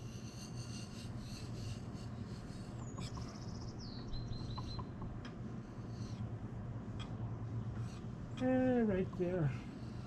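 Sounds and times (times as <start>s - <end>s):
steady low hum: 0.0s - 10.0s
songbird singing: 2.8s - 5.1s.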